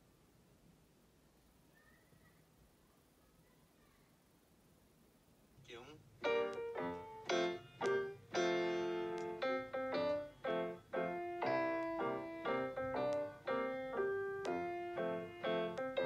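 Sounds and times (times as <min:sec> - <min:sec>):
piano music: 0:06.2 - 0:16.0.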